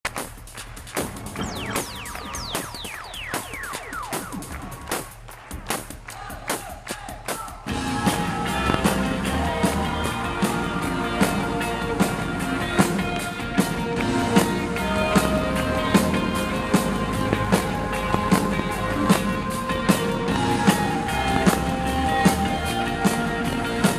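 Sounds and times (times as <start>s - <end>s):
drum beat: 0.1s - 23.9s
held keyboard chords: 7.7s - 23.9s
rock band playing: 7.7s - 23.9s.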